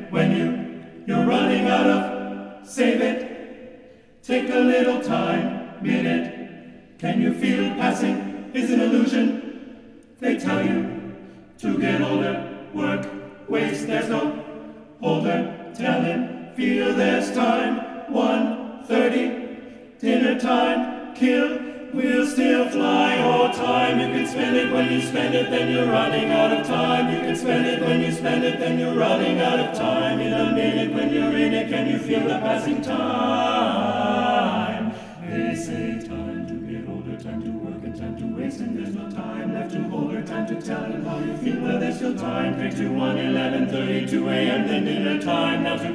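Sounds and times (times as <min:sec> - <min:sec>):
male voices singing in harmony: 0:00.0 - 0:03.5, 0:04.2 - 0:06.4, 0:07.0 - 0:45.9.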